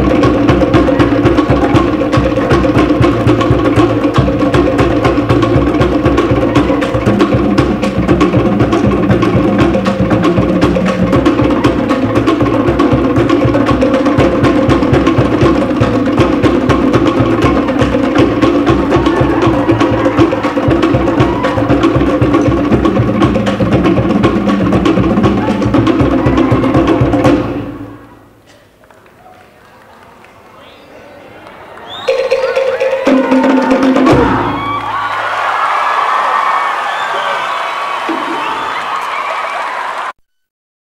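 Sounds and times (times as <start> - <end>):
bass drum beat: 0.0 - 27.9.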